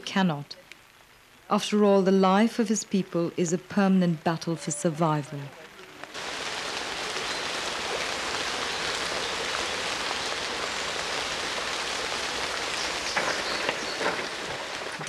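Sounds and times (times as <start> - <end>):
heavy rain: 0.0 - 15.0
water drips: 6.0 - 15.0.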